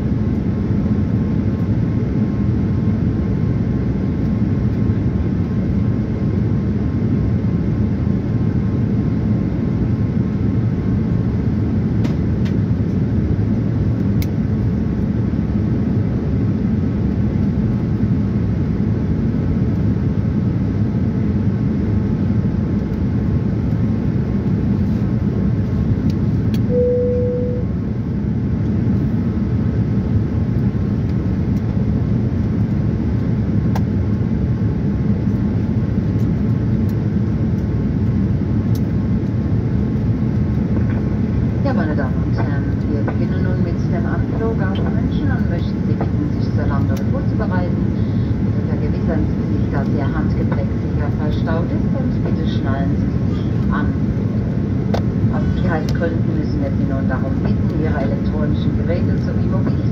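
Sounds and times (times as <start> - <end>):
airplane cabin engine rush: 0.0 - 59.9
brief single tone: 26.7 - 27.7.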